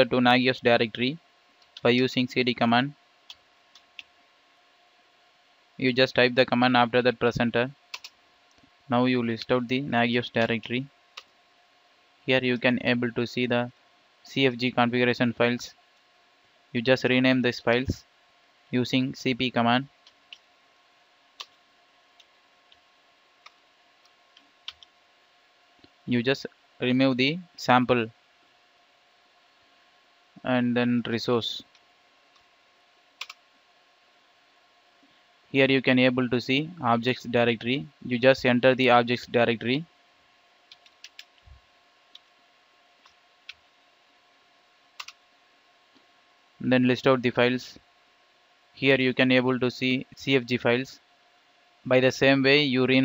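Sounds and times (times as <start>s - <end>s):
faint steady hum: 0.0s - 53.0s
computer keyboard keys clicking: 33.2s - 33.4s, 40.7s - 41.3s, 45.0s - 45.2s.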